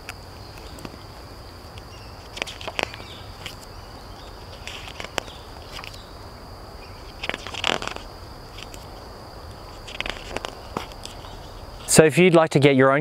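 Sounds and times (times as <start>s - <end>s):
book pages turning: 2.2s - 6.0s, 7.0s - 11.4s.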